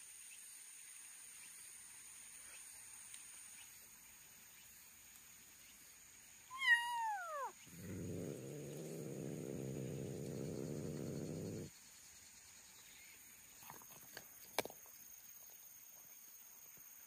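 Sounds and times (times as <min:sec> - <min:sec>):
cat meowing: 0:06.5 - 0:11.6
low steady rumbling: 0:07.7 - 0:11.7.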